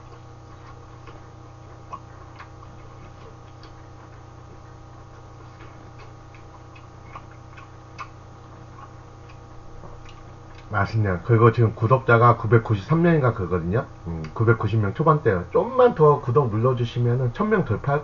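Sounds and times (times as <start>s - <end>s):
man chewing food: 0.0s - 10.8s
steady low hum: 0.0s - 18.0s.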